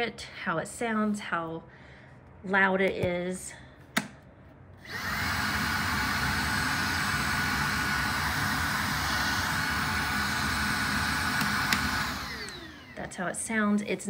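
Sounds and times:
vacuum motor whine with airflow: 4.8s - 13.3s.

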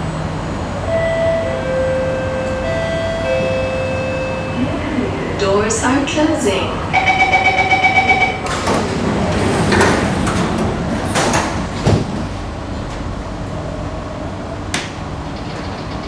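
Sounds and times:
sliding train doors shutting: 0.0s - 16.0s
train humming: 0.0s - 16.0s
rapid warning beeps: 7.0s - 8.4s.

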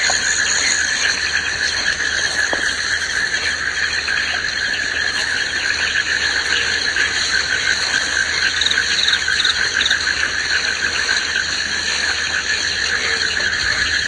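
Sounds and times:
frogs calling: 0.0s - 14.0s
insects chirring: 0.0s - 14.0s.

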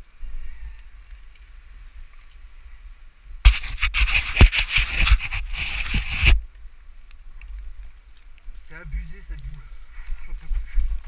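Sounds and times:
scraping and rustling through grass: 3.4s - 6.4s.

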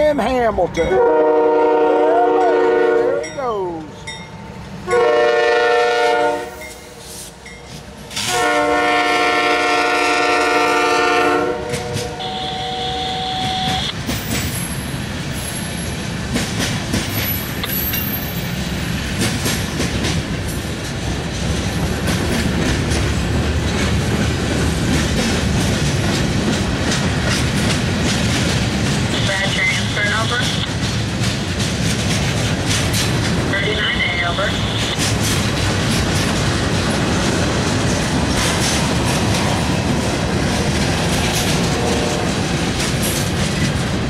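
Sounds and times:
freight train rumbling past: 0.0s - 44.0s
locomotive horn blasts: 1.0s - 3.3s, 4.9s - 6.6s, 8.2s - 14.0s, 33.8s - 35.0s, 41.7s - 42.3s
wheels clacking on rail joints: 13.4s - 44.0s.

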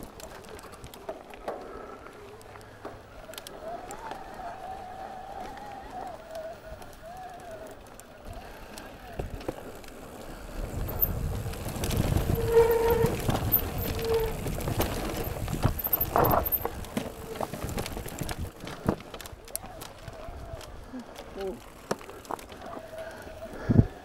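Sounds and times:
bike tyre rumble and rattling: 0.0s - 24.0s
short squeals: 12.0s - 17.5s.

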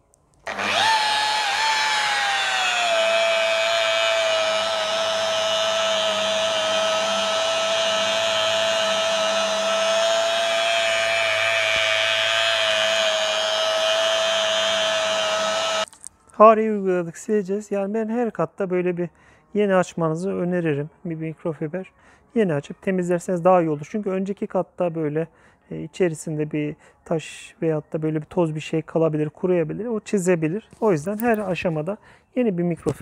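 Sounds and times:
rotary polisher whine: 0.4s - 15.9s.

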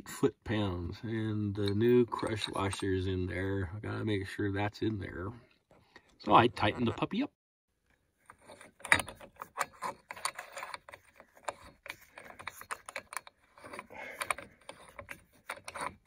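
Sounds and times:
socket clicking and rattling on nut: 8.2s - 16.0s.

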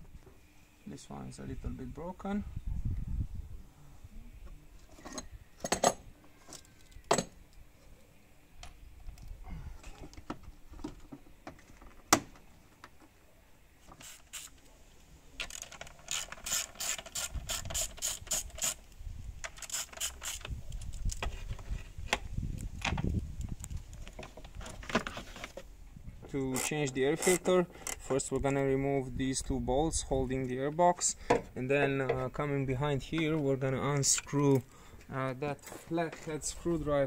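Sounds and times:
hand ratchet clicking: 15.4s - 18.8s, 19.4s - 20.5s.

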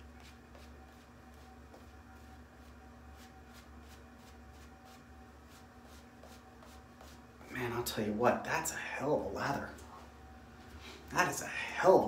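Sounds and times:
shaving brush swishing lather: 0.0s - 7.5s.

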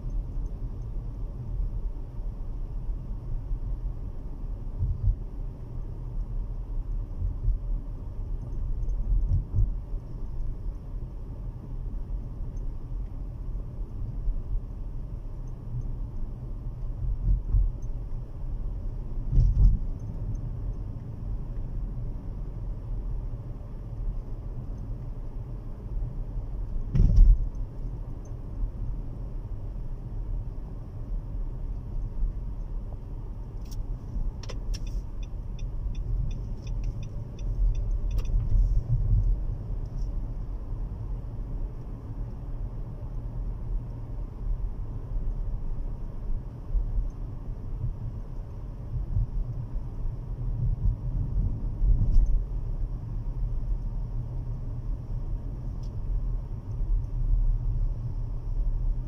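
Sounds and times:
car cabin road rumble: 0.0s - 59.0s.

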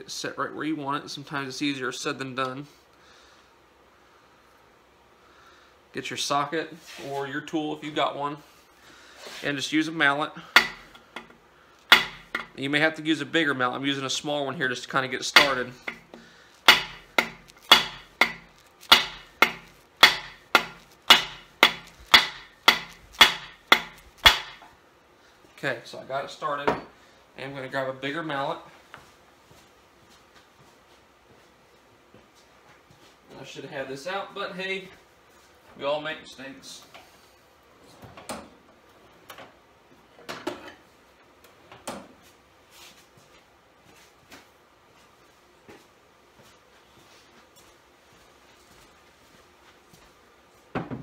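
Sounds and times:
tools knocking and clattering: 10.6s - 12.6s, 15.4s - 24.7s.

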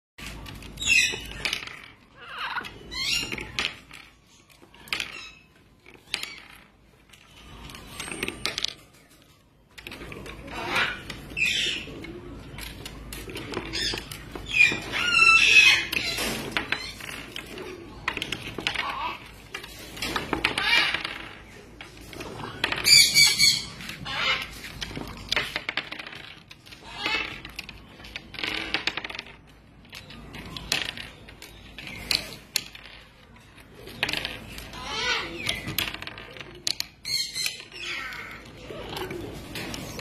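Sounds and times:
parrots calling and chattering: 0.2s - 40.0s
plastic balls knocking on wood: 0.2s - 40.0s.

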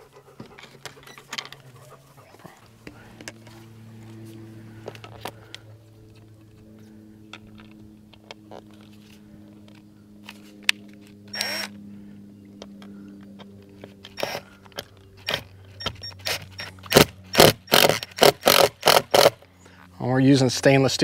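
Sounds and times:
low steady hum: 0.0s - 21.0s
cordless drill bursts: 11.3s - 11.8s, 14.1s - 14.5s, 15.2s - 19.4s.

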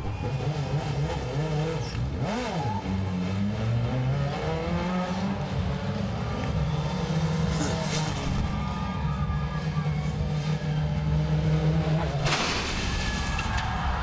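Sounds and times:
truck engine revving: 0.0s - 8.8s.

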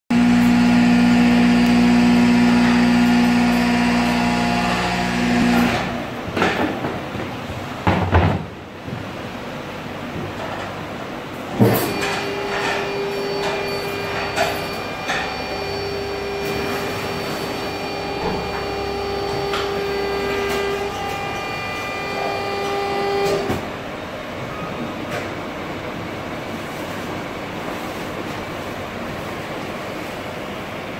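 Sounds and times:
hydraulic press motor humming: 0.1s - 6.3s, 11.5s - 23.9s
machine clunk: 11.5s - 23.8s.

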